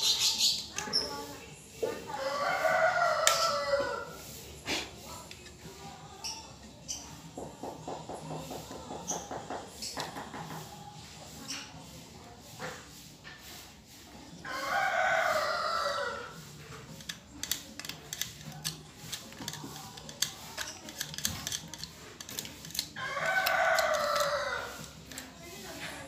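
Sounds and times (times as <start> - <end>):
rooster crowing: 2.1 - 4.2, 14.5 - 16.4, 23.0 - 24.9.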